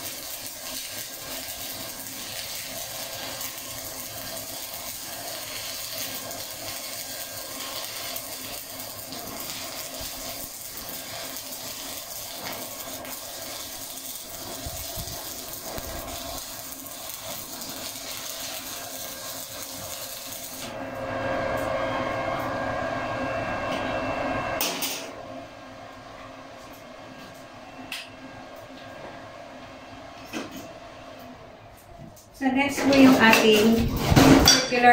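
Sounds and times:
welding arc crackling and hissing: 0.0s - 20.8s.

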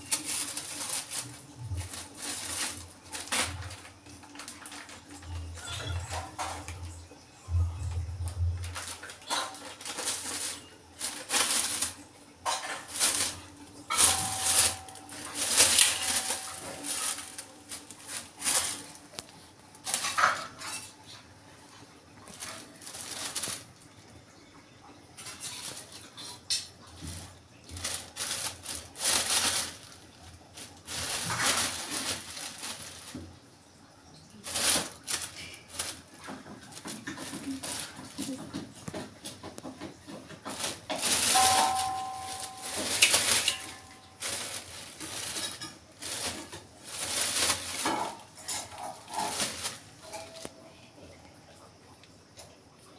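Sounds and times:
plastic bag crinkling: 0.0s - 24.0s, 25.2s - 39.0s, 40.4s - 50.7s.

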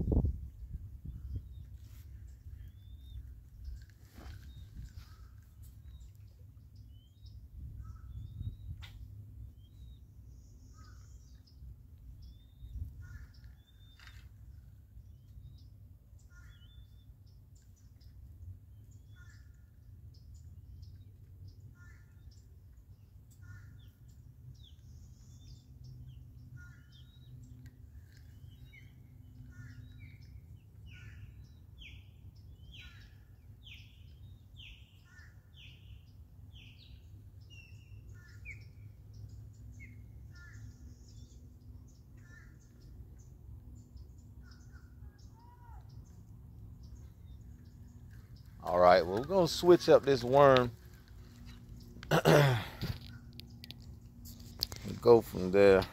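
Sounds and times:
steady low rumble: 0.0s - 10.6s, 45.9s - 55.9s.

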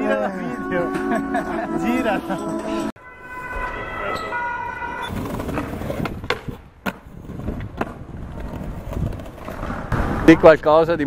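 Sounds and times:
skateboard wheels rolling over paving: 4.9s - 10.3s.

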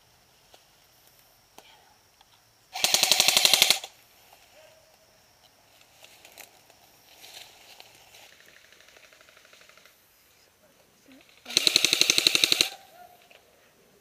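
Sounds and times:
airsoft rifle full-auto burst: 2.7s - 4.0s, 11.4s - 12.8s
faint rapid airsoft fire: 2.8s - 3.9s, 11.4s - 12.8s.

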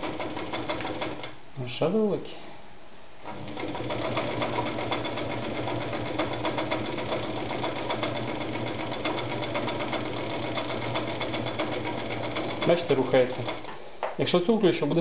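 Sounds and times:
sewing machine motor hum: 0.0s - 1.4s, 3.2s - 13.7s
sewing machine needle clicking: 3.3s - 13.7s.

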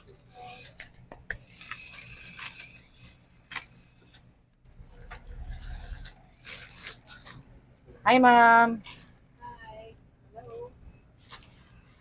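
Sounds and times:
plastic bag crinkling: 5.5s - 7.4s.

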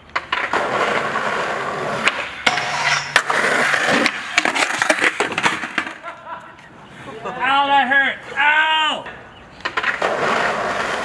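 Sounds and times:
skateboard clacking on ground: 0.0s - 6.7s, 9.0s - 11.0s
skateboard rolling on concrete: 0.0s - 11.0s
skater falling and sliding: 0.0s - 11.0s.

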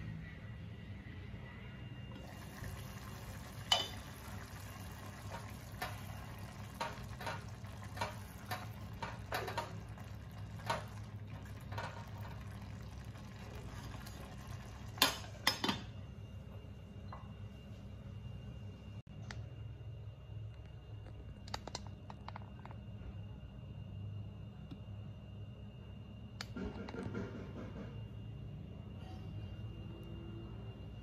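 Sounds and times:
rice simmering in a pot: 2.1s - 18.5s
glass pot lid clinking: 3.6s - 4.2s.

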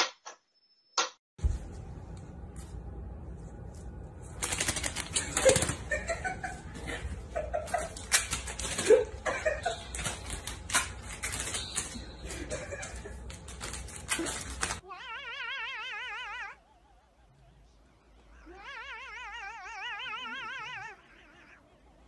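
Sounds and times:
paper towels rustling on tile: 1.4s - 14.8s
person laughing softly: 11.6s - 13.3s.

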